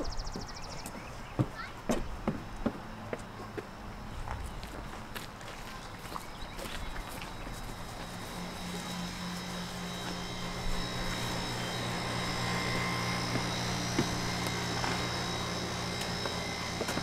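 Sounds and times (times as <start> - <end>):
air conditioner unit humming: 0.0 - 17.0.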